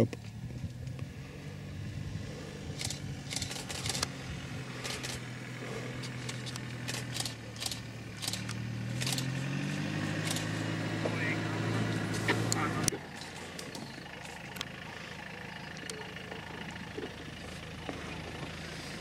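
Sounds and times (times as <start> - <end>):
vehicle engine idling: 0.0 - 19.0
sharp clicks: 2.8 - 4.1, 4.8 - 5.2, 6.0 - 9.4, 10.2 - 10.6.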